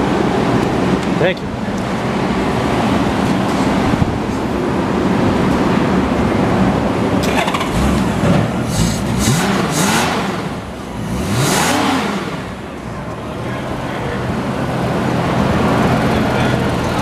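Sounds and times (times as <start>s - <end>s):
motorcycle engine revving: 7.2s - 12.8s.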